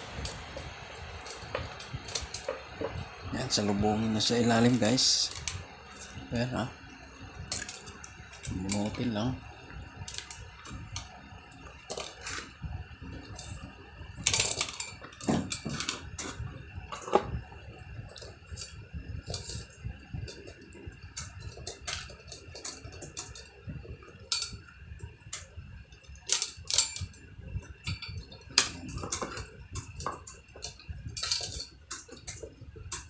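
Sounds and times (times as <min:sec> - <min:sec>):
small parts clicking and rattling: 0:01.2 - 0:02.6, 0:07.5 - 0:09.2, 0:10.0 - 0:11.1, 0:11.8 - 0:12.5, 0:14.2 - 0:17.3, 0:18.1 - 0:19.7, 0:20.3 - 0:23.6, 0:24.2 - 0:24.6, 0:26.1 - 0:33.0.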